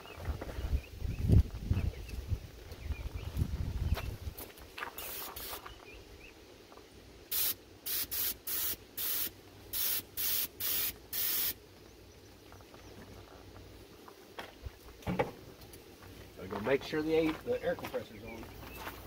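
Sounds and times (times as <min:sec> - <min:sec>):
paint spray gun hissing: 0:05.0 - 0:05.7, 0:07.3 - 0:11.6.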